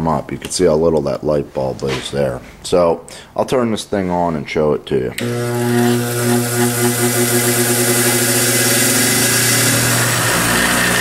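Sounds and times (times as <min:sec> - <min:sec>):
bench grinder running: 0:05.2 - 0:11.0.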